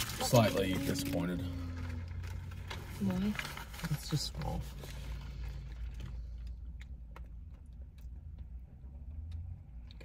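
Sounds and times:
paper wrappers crinkling: 0.0s - 6.4s
low steady rumble: 0.0s - 10.0s.

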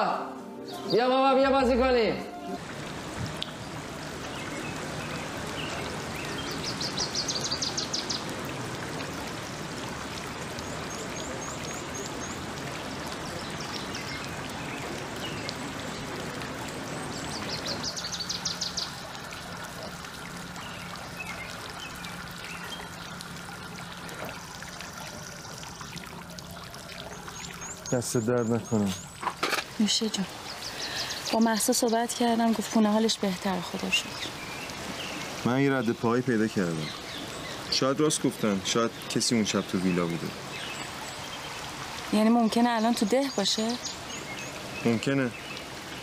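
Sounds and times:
running water: 0.0s - 46.0s
birds trilling and chirping: 10.6s - 46.0s.

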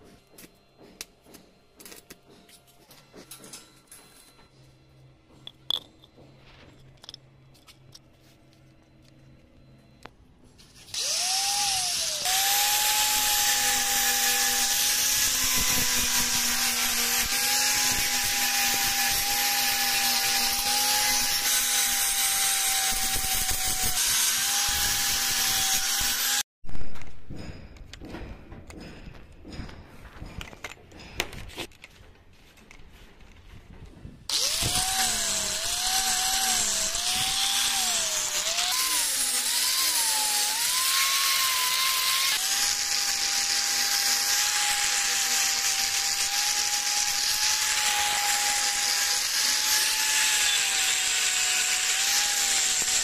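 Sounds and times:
angle grinder grinding metal: 10.6s - 26.4s, 34.3s - 53.0s.

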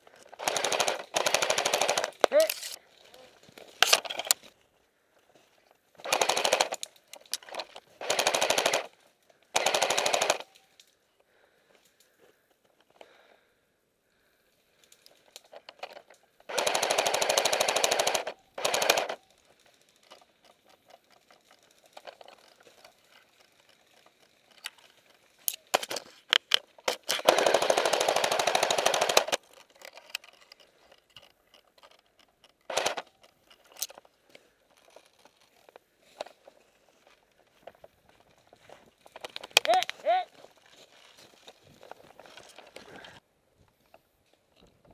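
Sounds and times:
airsoft rifle full-auto bursts: 0.3s - 2.7s, 6.0s - 10.6s, 16.5s - 20.1s, 26.8s - 29.4s, 32.7s - 33.1s.

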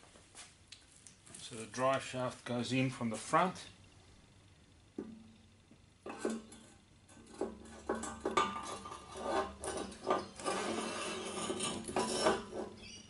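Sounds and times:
metal scraping and rubbing: 6.0s - 13.0s.

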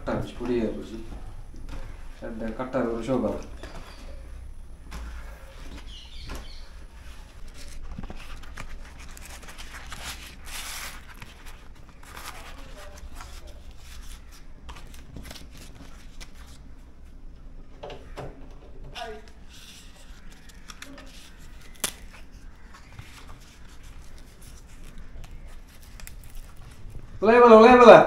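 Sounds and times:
leaf rustling and crinkling: 4.9s - 16.6s, 19.0s - 27.3s.

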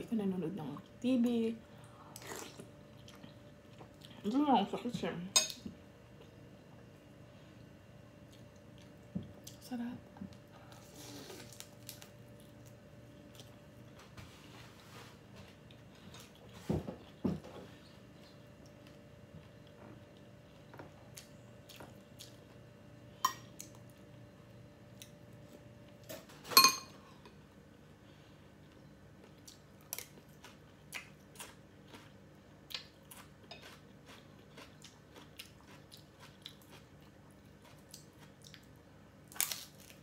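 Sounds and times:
crunching and chewing: 7.5s - 9.6s, 10.3s - 14.1s, 15.3s - 24.2s, 28.6s - 40.0s.

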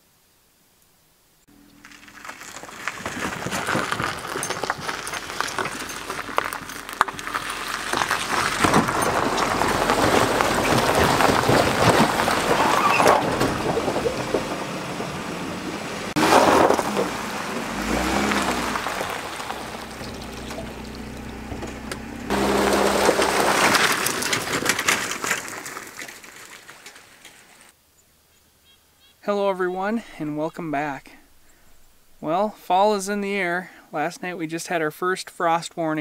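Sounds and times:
tyres crunching on gravel: 1.5s - 27.8s.

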